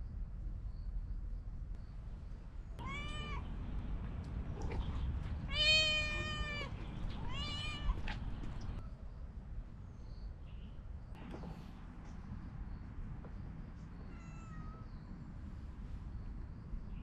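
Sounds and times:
low background hum: 0.0 - 17.0
cat meowing: 2.8 - 3.5, 4.6 - 8.8, 14.1 - 14.9.

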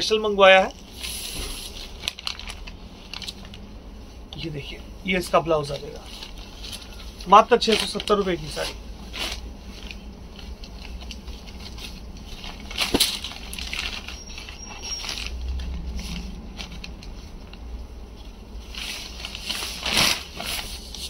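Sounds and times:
fabric rustling: 0.6 - 21.0.

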